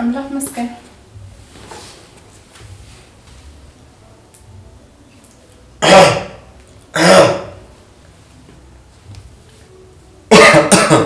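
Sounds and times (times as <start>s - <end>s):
man clearing his throat: 7.0s - 7.6s, 10.3s - 11.0s.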